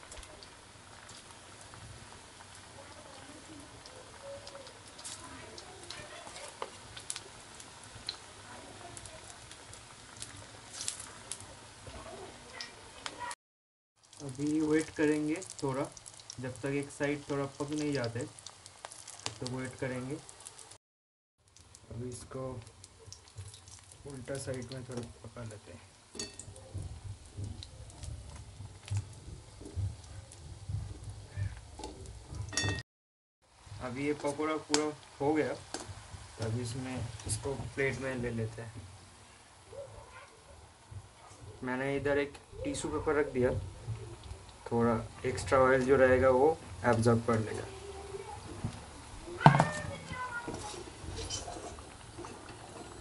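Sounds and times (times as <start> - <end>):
batter sizzling in hot oil: 0.0 - 13.4, 14.0 - 20.8, 21.4 - 32.8, 33.4 - 53.0
oil popping: 0.0 - 13.4, 14.0 - 20.8, 21.4 - 32.8, 33.5 - 53.0
steel spoon scraping a pan: 50.4 - 53.0.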